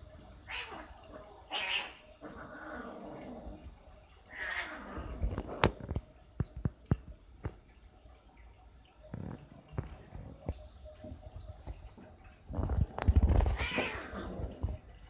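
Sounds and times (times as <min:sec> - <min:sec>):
cat growling: 0:00.5 - 0:05.7, 0:12.9 - 0:14.8.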